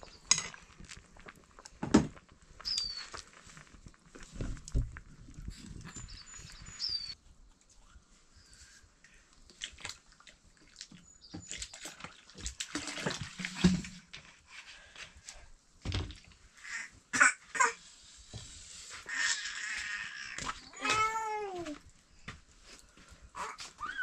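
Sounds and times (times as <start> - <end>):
water splashing and pouring: 9.5 - 14.2.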